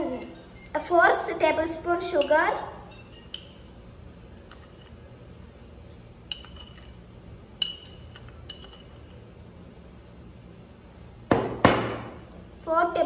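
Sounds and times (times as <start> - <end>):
spoon clinking against glass: 2.9 - 3.7, 6.3 - 7.0, 7.6 - 9.1.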